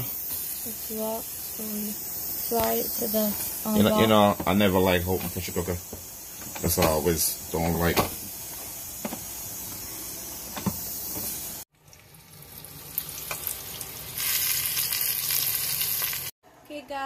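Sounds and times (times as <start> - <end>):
pressure cooker hissing: 0.0 - 11.7
sizzling hiss: 0.0 - 11.7, 12.3 - 16.3.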